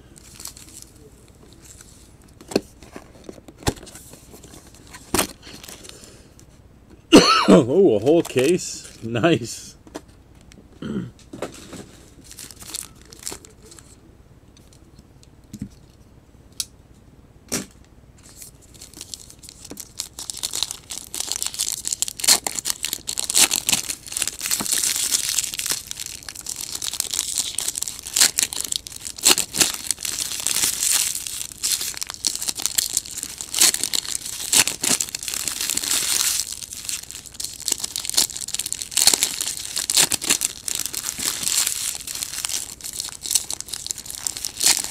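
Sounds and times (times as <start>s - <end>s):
foil wrappers crinkling and tearing: 0.1s - 1.8s, 4.4s - 6.1s, 7.9s - 9.1s, 11.5s - 14.0s, 18.3s - 44.9s.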